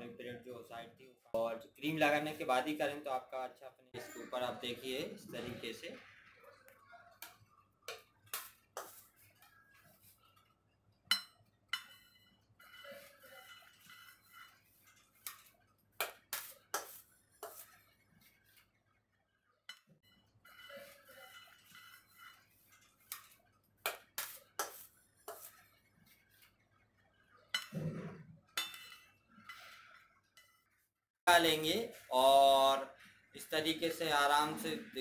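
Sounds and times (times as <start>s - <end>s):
metal spatula scraping: 4.0s - 32.1s
spatula clinking on metal: 11.1s - 17.8s, 19.7s - 25.6s, 27.5s - 27.8s, 28.6s - 30.7s.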